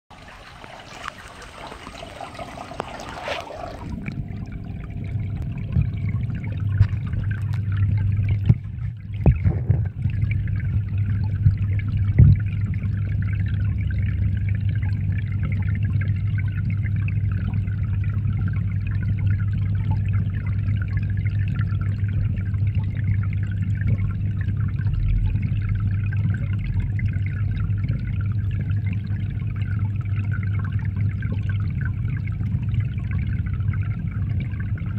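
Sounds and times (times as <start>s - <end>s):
low underwater hum: 0.1s - 34.9s
water trickling and splashing: 0.1s - 34.9s
underwater knocks: 3.8s - 13.9s.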